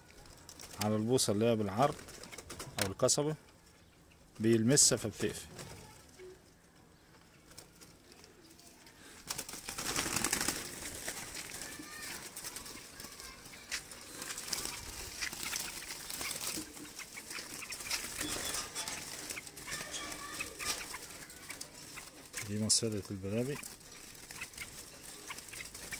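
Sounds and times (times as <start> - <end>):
bird wings flapping and rustling: 0.0 - 2.9, 4.4 - 6.2, 7.2 - 25.9.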